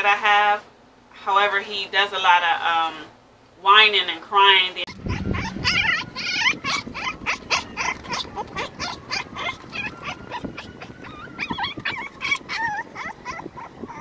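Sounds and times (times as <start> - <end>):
puppy whimpering and yelping: 4.9 - 14.0.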